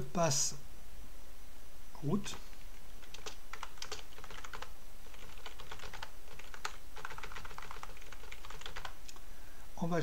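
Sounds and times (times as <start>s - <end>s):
faint low hum: 0.0s - 10.0s
computer keyboard typing: 3.0s - 9.0s.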